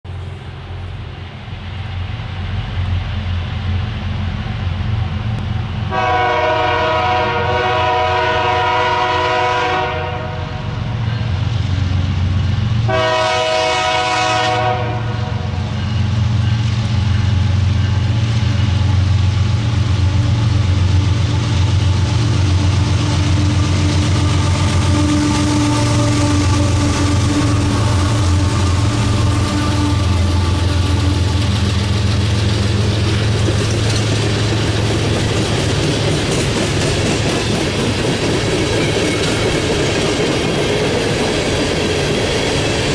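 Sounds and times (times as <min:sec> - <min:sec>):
diesel locomotive engine rumble: 0:00.0 - 0:42.9
train horn blasts: 0:05.8 - 0:11.2, 0:12.8 - 0:15.8, 0:22.8 - 0:31.6.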